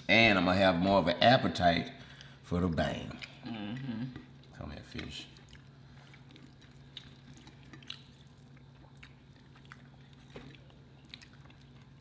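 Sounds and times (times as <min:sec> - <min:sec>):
quiet chewing: 0:03.1 - 0:12.0.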